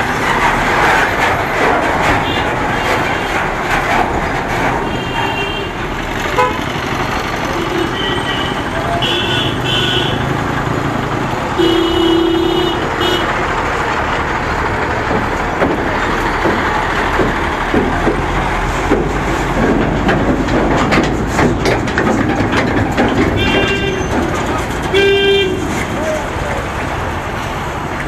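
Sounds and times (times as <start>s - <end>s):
diesel trucks running slowly: 0.0s - 28.0s
trailer rattling knocks: 0.0s - 28.0s
vehicle horn: 4.8s - 6.7s, 7.6s - 10.3s, 11.6s - 13.4s, 23.4s - 24.1s, 24.9s - 25.8s.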